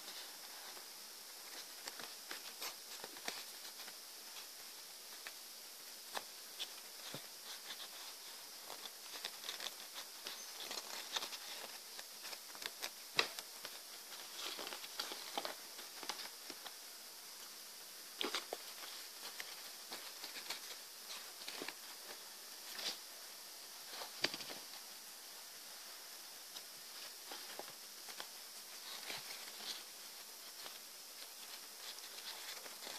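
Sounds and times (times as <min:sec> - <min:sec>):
faint steady hiss: 0:00.0 - 0:32.9
paper crinkling and rustling: 0:06.1 - 0:16.7, 0:18.2 - 0:23.0, 0:26.9 - 0:32.9.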